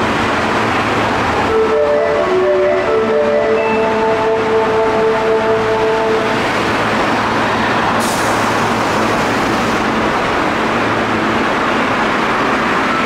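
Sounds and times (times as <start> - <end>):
subway train rumbling: 0.0 - 13.0
compressed air hiss: 8.0 - 9.9.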